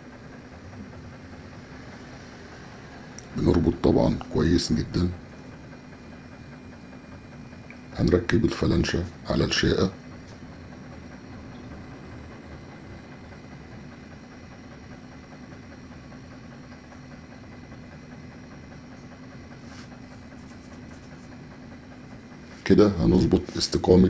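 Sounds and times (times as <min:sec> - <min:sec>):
workshop machinery hum: 0:00.0 - 0:24.0.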